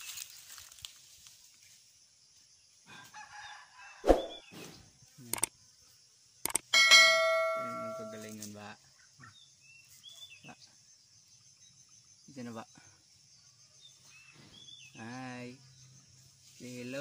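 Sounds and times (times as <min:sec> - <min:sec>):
bell-like ding: 0:06.8 - 0:08.3.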